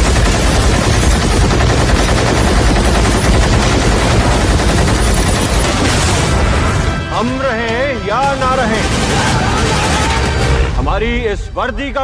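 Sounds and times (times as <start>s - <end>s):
rotary machine gun firing: 0.0s - 6.7s, 8.2s - 10.6s.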